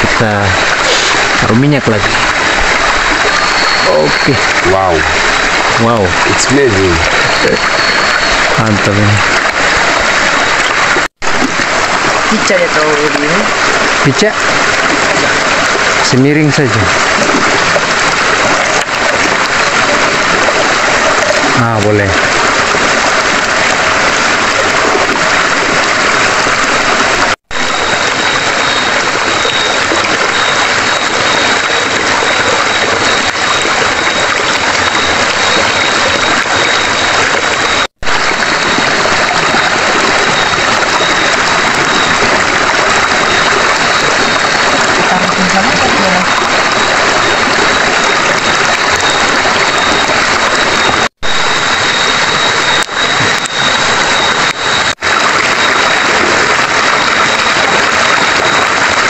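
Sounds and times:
river flowing over rocks: 0:00.0 - 0:06.3, 0:16.9 - 0:21.6, 0:22.2 - 0:59.0
thin steady high note: 0:00.0 - 0:09.2.

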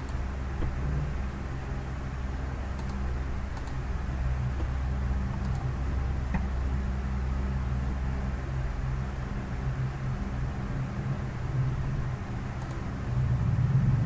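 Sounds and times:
computer mouse clicks: 0:00.0 - 0:00.8, 0:02.8 - 0:03.8, 0:05.4 - 0:05.7, 0:12.6 - 0:12.8
room hum and hiss: 0:00.0 - 0:14.0.

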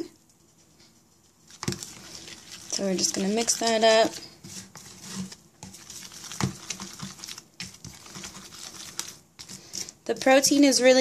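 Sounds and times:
spoon scraping thick paste: 0:01.2 - 0:11.0.

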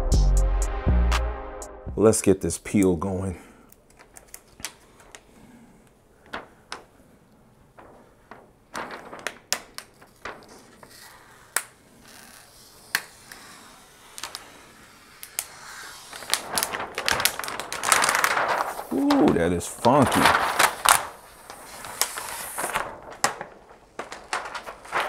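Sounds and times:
plastic film crackling: 0:03.8 - 0:05.3, 0:06.2 - 0:25.0
plastic rustling: 0:03.8 - 0:25.0.

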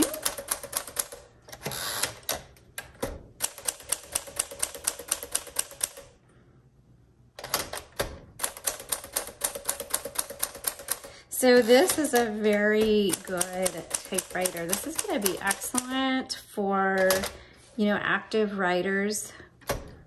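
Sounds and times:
typewriter keys clacking: 0:00.0 - 0:01.2, 0:03.4 - 0:06.1, 0:07.4 - 0:16.0, 0:17.0 - 0:17.4
typewriter carriage return: 0:00.0 - 0:06.1, 0:07.4 - 0:16.0, 0:17.0 - 0:17.4.

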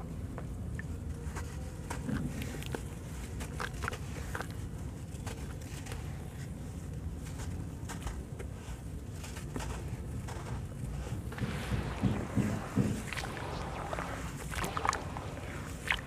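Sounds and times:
dry mix being crushed: 0:11.3 - 0:16.0
grit pattering into water: 0:11.3 - 0:16.0.

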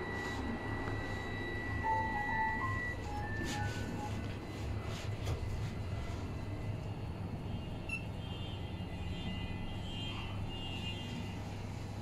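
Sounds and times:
high wavering whine: 0:00.0 - 0:07.0.

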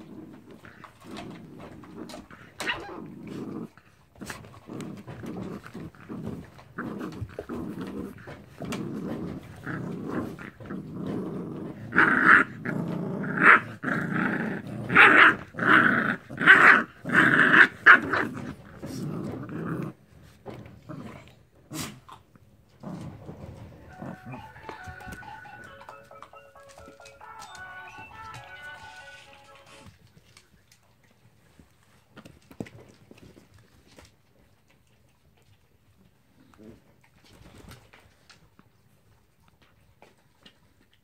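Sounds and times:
puppies growling: 0:00.0 - 0:25.2, 0:32.2 - 0:37.8.

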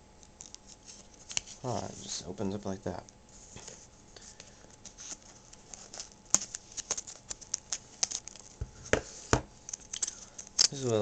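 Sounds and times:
plastic packaging crinkling: 0:04.9 - 0:08.6.

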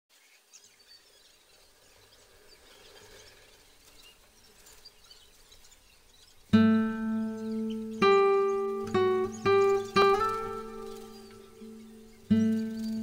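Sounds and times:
small high chirps: 0:01.4 - 0:13.0
acoustic guitar strum: 0:06.5 - 0:13.0.

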